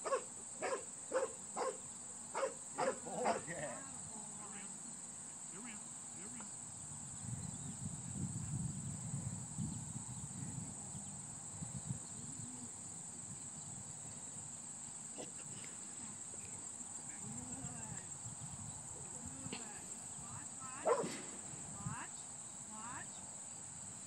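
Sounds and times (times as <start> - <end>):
crickets chirring: 0.0 - 24.0
faint low murmur: 11.8 - 14.4, 15.1 - 23.3.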